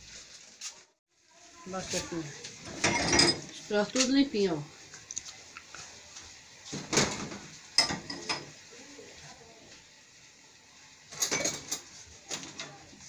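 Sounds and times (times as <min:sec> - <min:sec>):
dishes and glassware clinking: 0:02.6 - 0:03.5, 0:06.9 - 0:08.5, 0:11.1 - 0:12.7.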